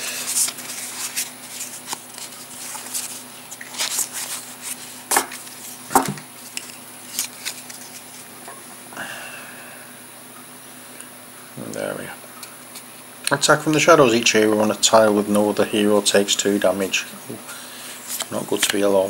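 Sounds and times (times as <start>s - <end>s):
cards clicking and rustling: 0.0s - 8.2s, 18.1s - 19.0s
sharp card taps: 5.1s - 6.3s.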